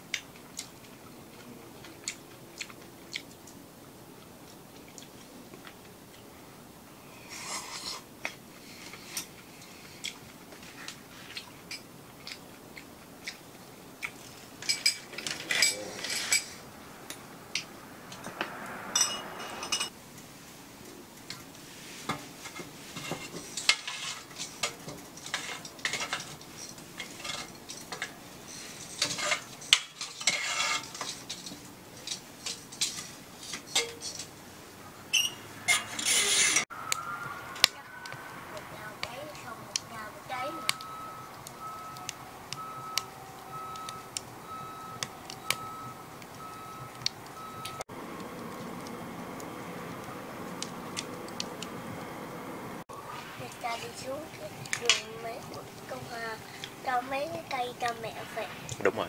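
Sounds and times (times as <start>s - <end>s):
utensils clinking against pan: 14.6s - 16.6s, 19.0s - 19.9s, 22.1s - 34.3s, 35.1s - 36.7s, 53.6s - 58.0s.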